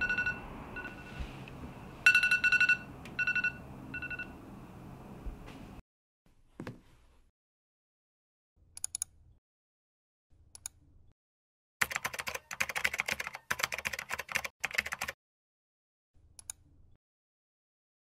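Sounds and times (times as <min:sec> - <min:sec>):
typing on a computer keyboard: 0:11.8 - 0:15.2.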